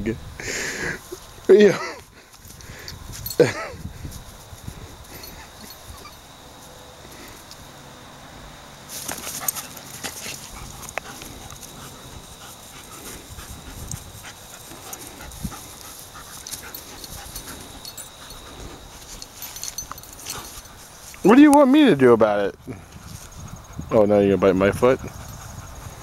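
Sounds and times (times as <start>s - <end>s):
dogs panting: 4.7s - 6.2s, 9.0s - 22.0s, 22.8s - 26.0s
scuffling in grass: 8.9s - 21.8s.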